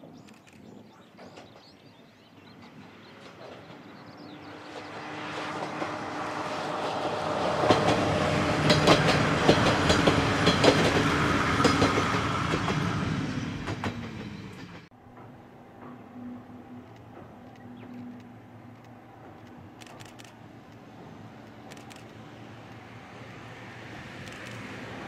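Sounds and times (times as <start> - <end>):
diesel train engine drone: 2.4 - 25.0
train wheels clacking over rail joints: 5.4 - 13.0.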